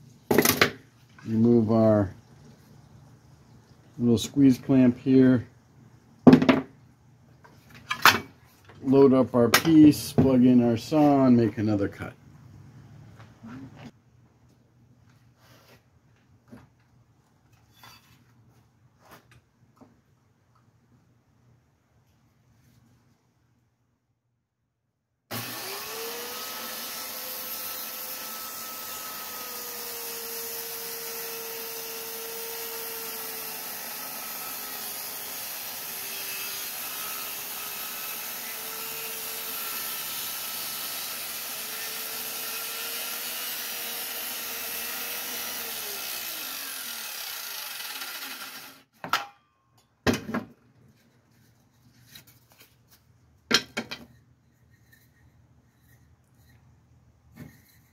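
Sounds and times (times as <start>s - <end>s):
circular saw cutting wood: 25.3s - 48.9s.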